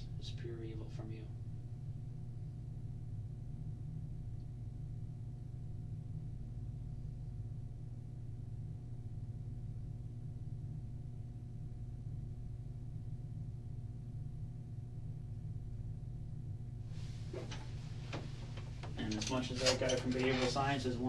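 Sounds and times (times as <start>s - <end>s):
low electrical hum: 0.0s - 21.0s
soft knocks of chair: 17.1s - 19.0s.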